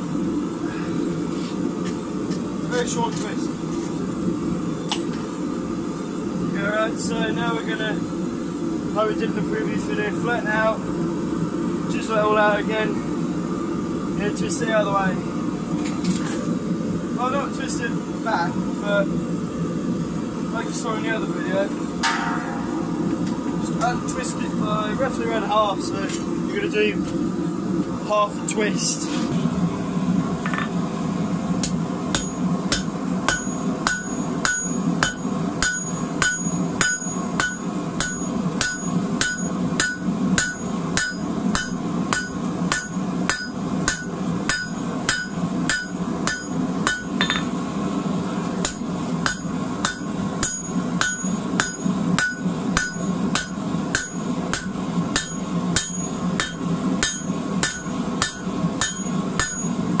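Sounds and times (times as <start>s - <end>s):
steady low hum: 0.0s - 60.0s
hammer ringing on anvil: 22.0s - 23.0s, 32.2s - 47.5s, 48.6s - 60.0s.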